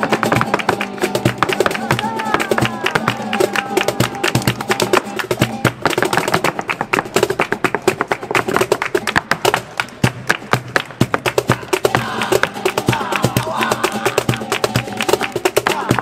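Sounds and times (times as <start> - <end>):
nylon-string guitar: 0.0 - 10.3
heeled footwork on dance board: 0.0 - 12.5
cajon drumming: 0.0 - 16.0
hand-clapping: 0.0 - 16.0.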